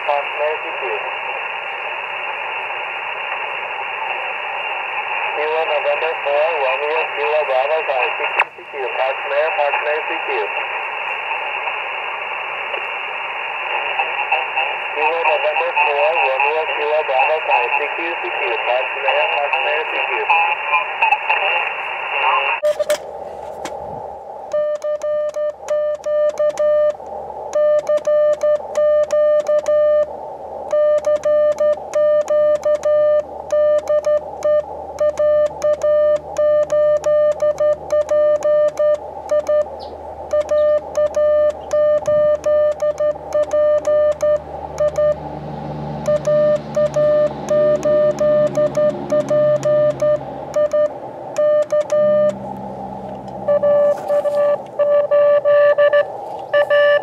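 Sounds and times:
receiver hiss: 0:00.0 - 0:57.0
morse code beeps: 0:24.5 - 0:30.1, 0:30.7 - 0:45.2, 0:45.9 - 0:52.5, 0:53.2 - 0:57.0.

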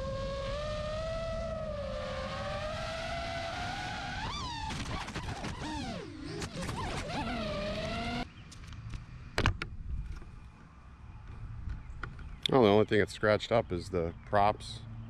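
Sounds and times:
drone propellers whining: 0:00.0 - 0:08.3.

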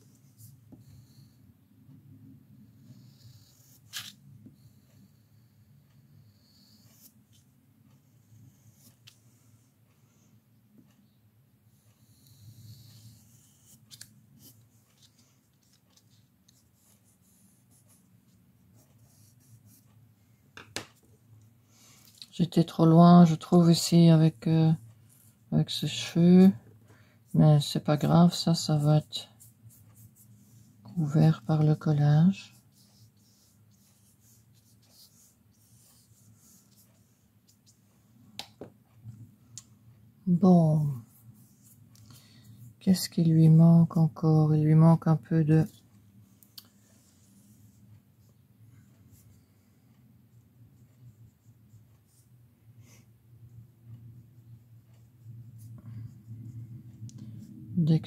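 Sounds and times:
faint room hum: 0:00.0 - 0:58.0
pencil scratching on paper: 0:02.6 - 0:04.1, 0:04.9 - 0:09.7, 0:11.7 - 0:20.0, 0:27.3 - 0:37.9, 0:50.8 - 0:53.0
brush strokes on paper: 0:11.7 - 0:20.0, 0:21.7 - 0:38.2, 0:40.3 - 0:58.0.

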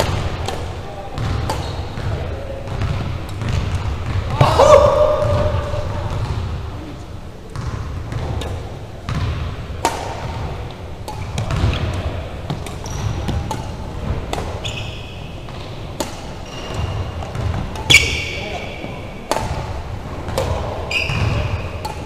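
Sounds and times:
sneakers squeaking on hardwood: 0:00.0 - 0:04.5, 0:07.6 - 0:22.0
rackets striking shuttlecock: 0:00.0 - 0:06.6, 0:07.5 - 0:22.0.

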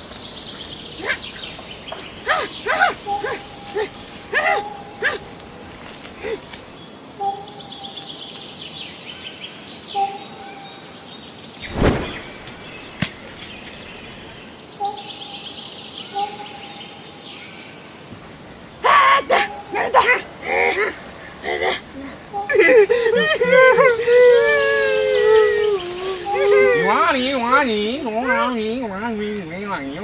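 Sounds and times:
birds chirping and calling: 0:00.0 - 0:30.0
dull thud: 0:11.6 - 0:13.5.

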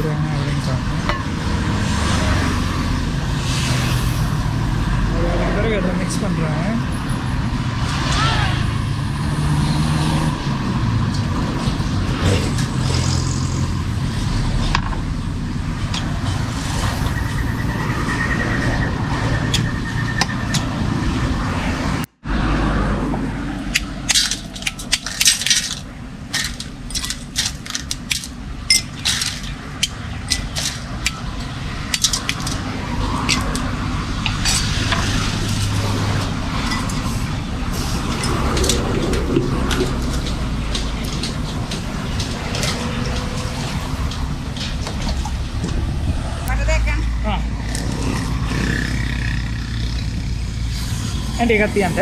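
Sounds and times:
traffic rumble: 0:00.0 - 0:52.0
metal spoon clinking on glass: 0:28.7 - 0:29.4.

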